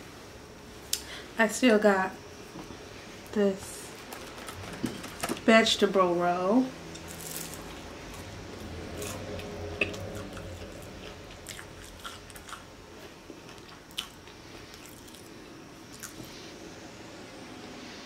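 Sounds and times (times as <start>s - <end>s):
person chewing: 8.9s - 16.3s.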